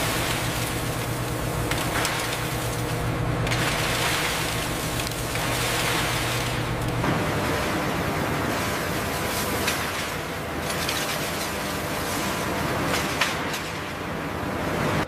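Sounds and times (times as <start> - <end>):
low machine hum: 0.0 - 15.0
scrap metal clattering onto conveyor: 8.5 - 14.0.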